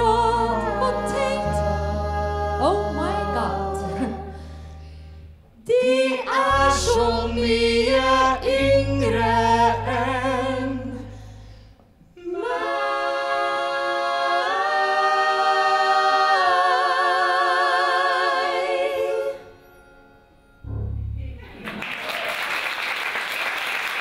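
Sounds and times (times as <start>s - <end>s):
vocal quartet singing in harmony: 0.0s - 20.2s
singer taking a breath: 4.4s - 5.4s, 11.1s - 11.9s
low bass note: 6.5s - 11.4s, 20.6s - 21.7s.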